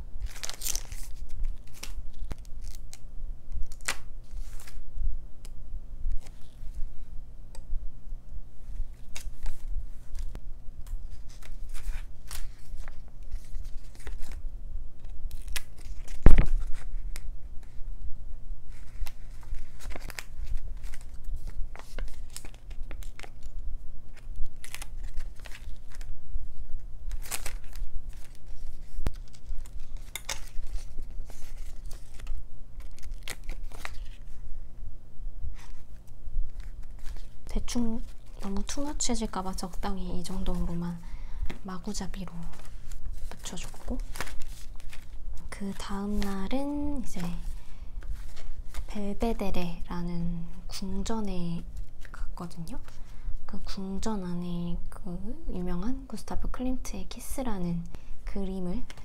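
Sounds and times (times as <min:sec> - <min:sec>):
stickers peeling and rustling: 0:00.2 - 0:03.0, 0:18.7 - 0:26.1, 0:26.7 - 0:34.4, 0:35.5 - 0:40.8, 0:41.4 - 0:49.0.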